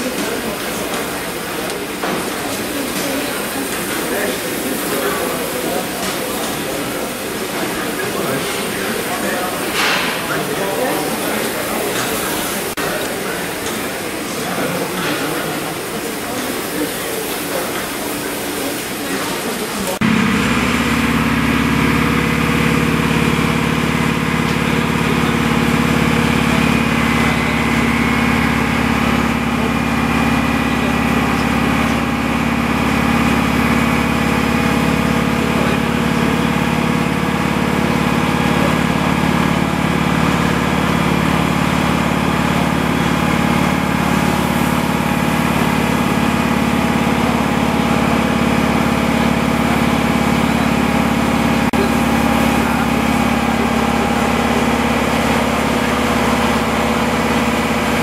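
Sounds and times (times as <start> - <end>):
locomotive machinery humming: 0.0 - 58.0
platform noise: 20.0 - 33.2.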